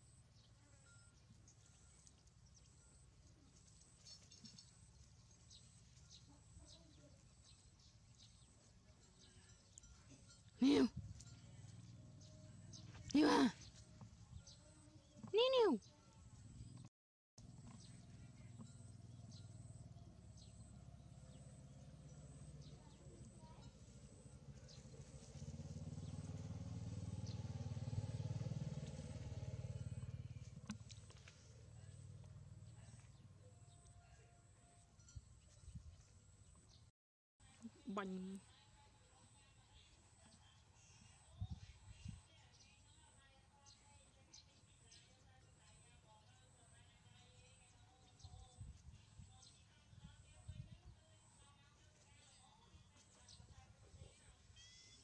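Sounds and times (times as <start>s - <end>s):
engine passing by: 10.2s - 14.5s, 15.4s - 33.8s.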